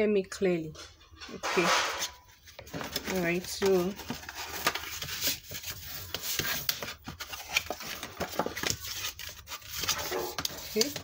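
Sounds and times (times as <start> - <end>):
paper clicks and crinkles: 2.4 - 11.0
paper rubbing under bone folder: 8.6 - 11.0.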